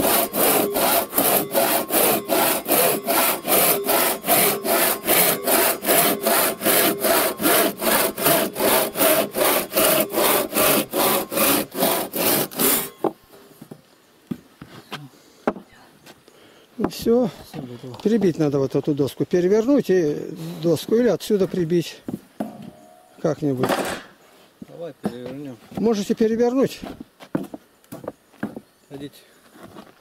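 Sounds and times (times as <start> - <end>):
crosscut saw cutting wood: 0.0 - 13.1.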